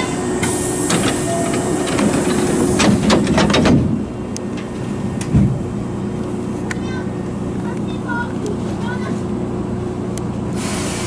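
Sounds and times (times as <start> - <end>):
train doors clicking shut: 0.0 - 5.7
low hum of stopped train: 0.0 - 11.0.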